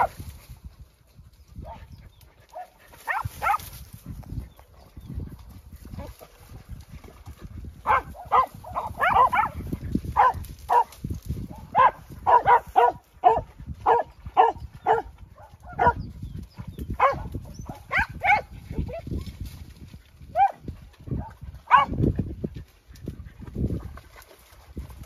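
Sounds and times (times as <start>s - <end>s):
dog barking in high yelps: 2.5s - 3.6s, 7.8s - 9.6s, 10.2s - 10.9s, 11.6s - 16.0s, 17.0s - 19.0s, 20.3s - 20.6s, 21.7s - 22.0s.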